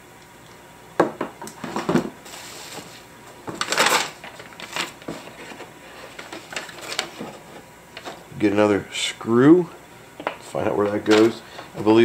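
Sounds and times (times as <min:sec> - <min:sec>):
crinkling rustle of packaging: 0:02.2 - 0:08.3.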